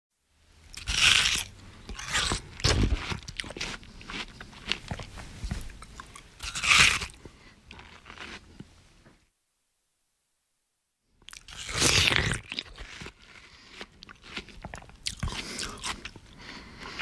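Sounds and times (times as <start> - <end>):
crunching watermelon bites: 0.6 - 8.6, 11.3 - 17.0.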